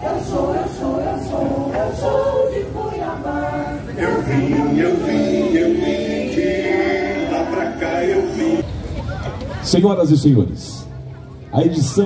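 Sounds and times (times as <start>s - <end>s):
choir singing: 0.0s - 8.6s.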